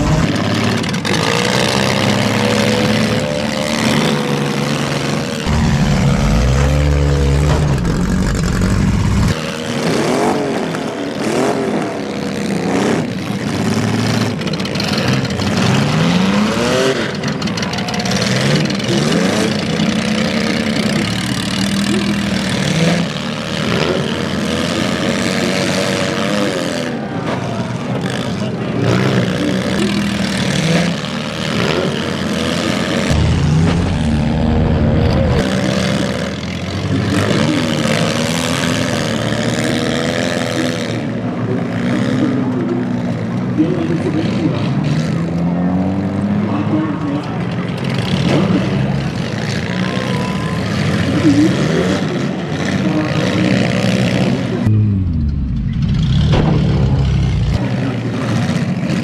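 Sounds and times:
car engines revving: 0.0 - 59.0
sharp knocks: 55.4 - 57.6.

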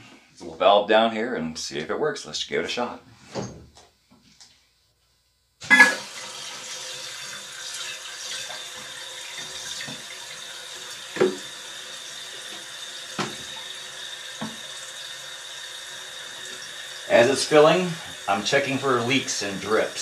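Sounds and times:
water hissing into toilet tank: 5.6 - 20.0.

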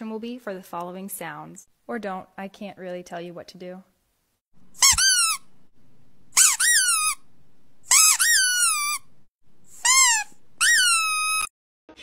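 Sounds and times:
squeaky dog toy: 4.8 - 5.5, 6.3 - 7.3, 7.9 - 9.1, 9.7 - 11.5.

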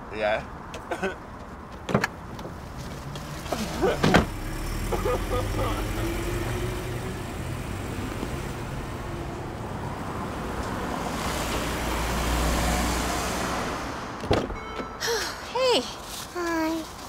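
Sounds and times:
road noise: 0.0 - 17.0
traffic engine rumble: 0.0 - 17.0.

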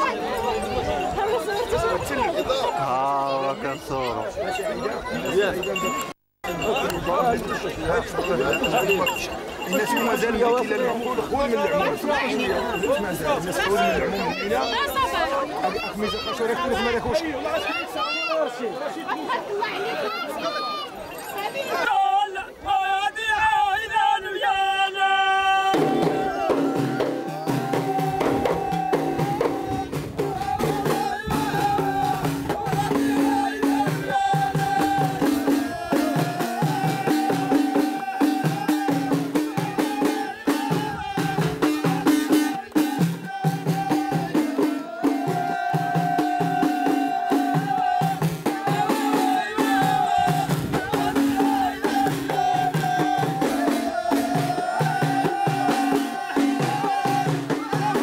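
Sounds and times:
frame drums beating: 0.0 - 15.2, 25.7 - 58.0
men chanting together: 24.2 - 58.0.

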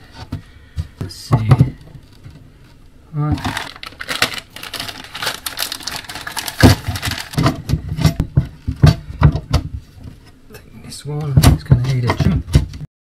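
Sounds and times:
plastic bags rustling: 3.2 - 8.8.

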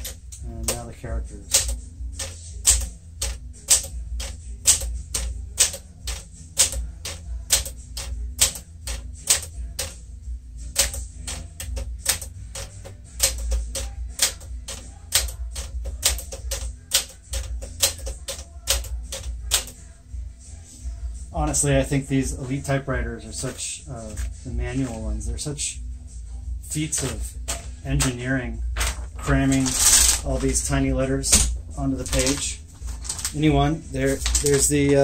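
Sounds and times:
manual typewriter key clacks: 1.5 - 10.0, 10.8 - 19.7.

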